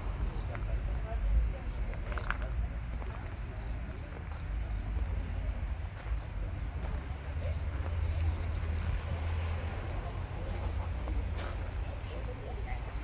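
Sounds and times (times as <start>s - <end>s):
footsteps on gravel: 1.8s - 13.0s.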